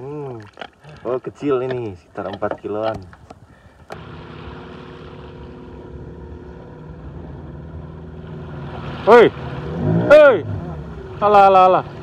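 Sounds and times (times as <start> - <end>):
boat motor running: 3.8 - 12.0
water wash: 3.9 - 12.0.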